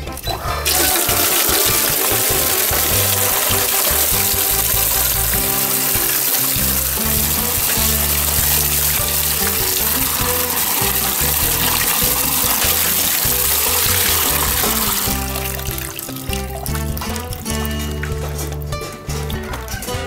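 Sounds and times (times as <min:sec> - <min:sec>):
background music: 0:00.0 - 0:20.0
tap water splashing into basin: 0:00.0 - 0:20.0
hands rubbing fruit in colander: 0:00.7 - 0:20.0.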